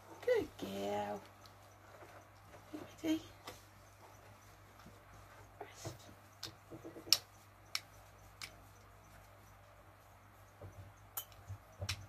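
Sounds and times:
sharp clicks: 6.4s - 8.6s.

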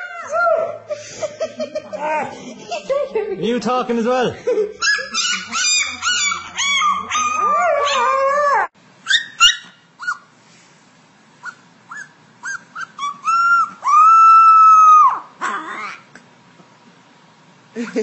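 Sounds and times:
puppy whimpering and yelping: 0.0s - 1.0s, 4.8s - 10.3s, 11.4s - 16.1s
husky howling: 13.3s - 16.0s.

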